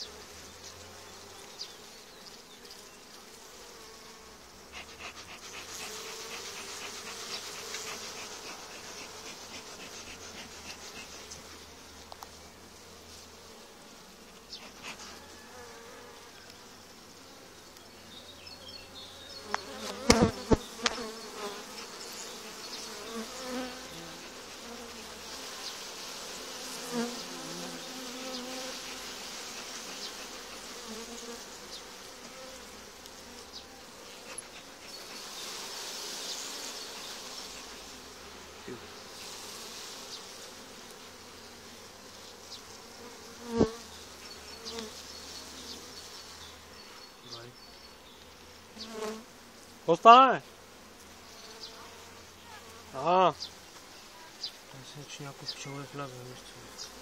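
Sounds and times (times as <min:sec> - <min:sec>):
honeybees buzzing: 0:00.0 - 0:57.0.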